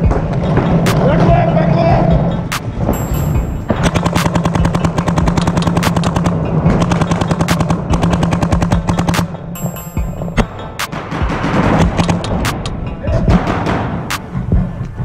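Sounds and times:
paintball marker rapid firing: 0.0 - 1.5, 3.7 - 9.6, 10.4 - 12.7.

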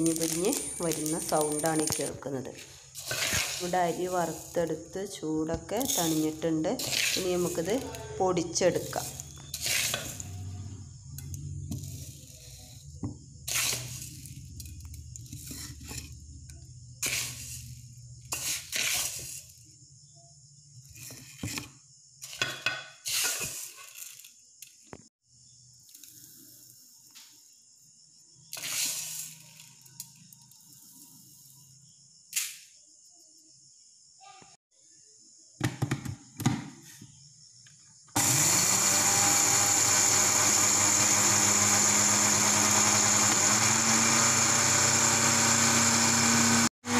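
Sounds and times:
rice grains rattling into a jar: 0.0 - 2.1.

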